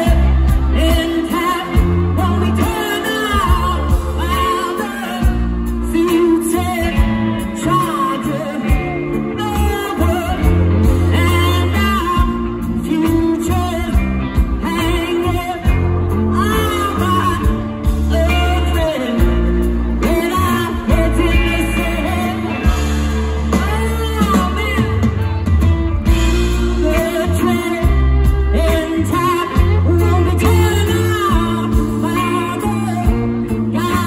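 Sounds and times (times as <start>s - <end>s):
person singing: 0.0s - 34.0s
rock band playing live: 0.0s - 34.0s.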